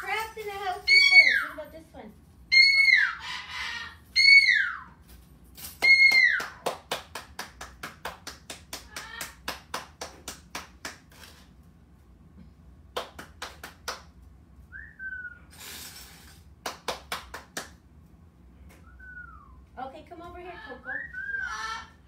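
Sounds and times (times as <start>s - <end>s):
hands clapping: 5.8s - 11.2s, 13.0s - 14.1s, 16.6s - 17.8s
brief hiss: 15.5s - 16.4s.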